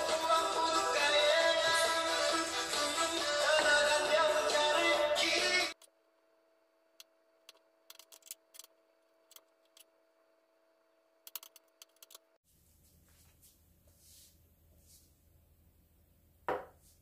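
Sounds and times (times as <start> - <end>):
background music: 0.0 - 5.8.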